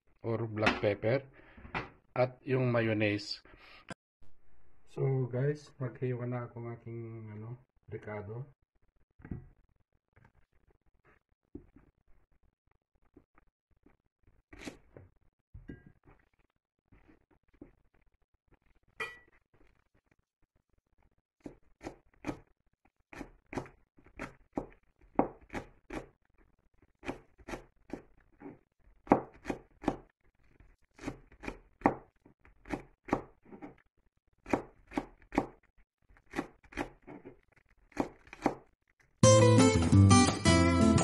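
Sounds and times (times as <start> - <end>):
knife chopping on board: 23.1 - 26.1, 29.0 - 30.0, 31.0 - 32.0, 32.6 - 33.8, 34.4 - 35.6, 36.3 - 37.3, 37.9 - 38.6.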